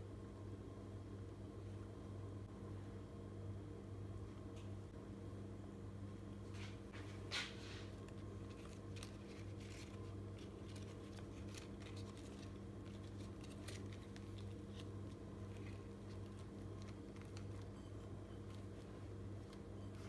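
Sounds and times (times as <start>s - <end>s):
steady low hum: 0.0s - 20.0s
leaves and bread crackling: 7.1s - 20.0s.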